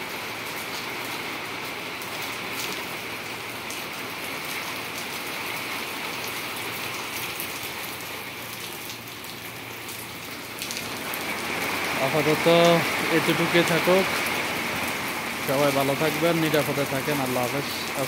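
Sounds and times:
heavy rain on paving: 0:00.0 - 0:18.0
raindrops ticking: 0:00.3 - 0:18.0.

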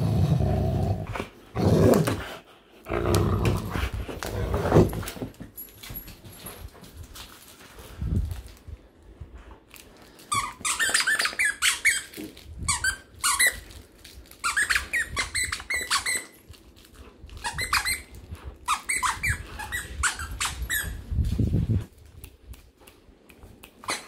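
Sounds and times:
squeaky dog toy squeaking: 0:10.3 - 0:13.6, 0:14.4 - 0:16.4, 0:17.4 - 0:21.0.

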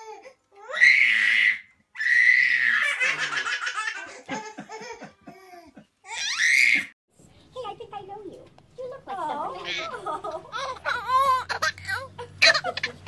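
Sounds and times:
baby laughing and squealing: 0:10.5 - 0:13.0.

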